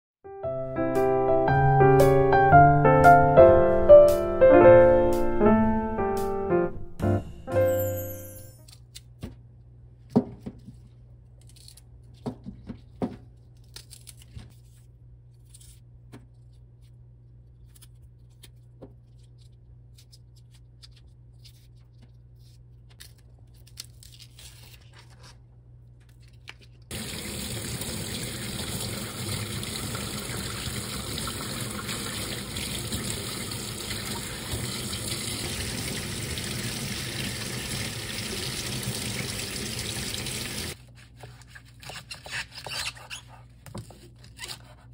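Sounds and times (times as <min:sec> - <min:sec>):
garlic stalks trimmed and peeled: 0:08.6 - 0:09.4, 0:11.2 - 0:25.3
tap running into sink: 0:26.9 - 0:40.8.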